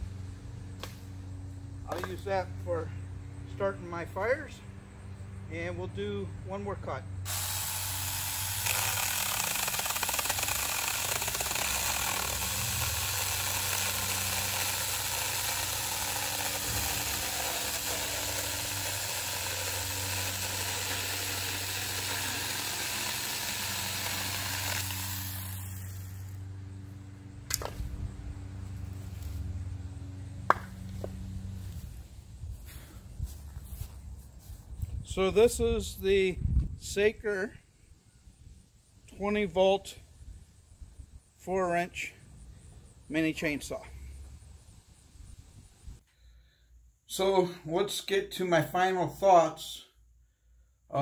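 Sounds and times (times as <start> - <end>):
electric chainsaw sawing board: 7.2 - 26.8.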